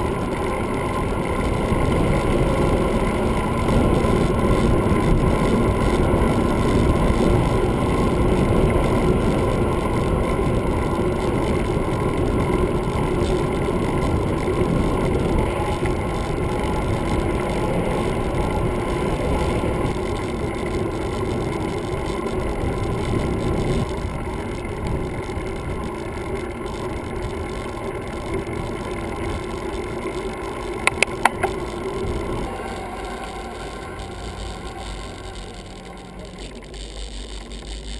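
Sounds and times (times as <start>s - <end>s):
bicycle rolling on asphalt: 0.0s - 37.9s
quick sharp clicks: 30.9s - 31.6s.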